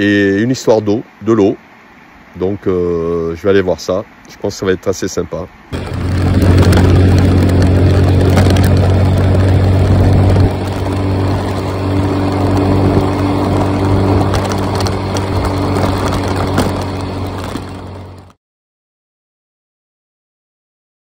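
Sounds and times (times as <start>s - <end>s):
wind and road noise on microphone: 0.0s - 18.4s
scooter engine running: 5.8s - 18.4s.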